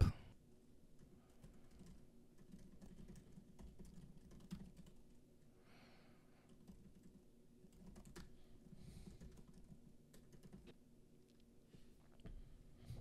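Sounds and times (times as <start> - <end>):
typing on computer keyboard: 1.0 - 5.2, 6.5 - 8.4, 9.0 - 10.8.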